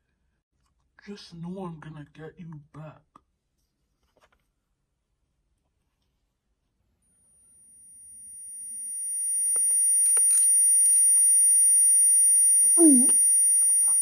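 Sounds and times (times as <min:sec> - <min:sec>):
high-pitched electronic tone: 0:08.6 - 0:14.0.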